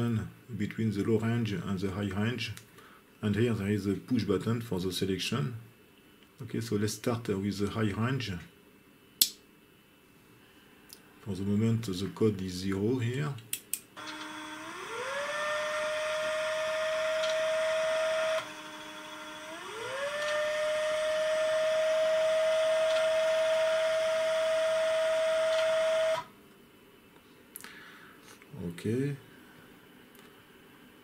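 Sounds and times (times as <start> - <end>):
stepper motor whine: 14.0 - 26.3.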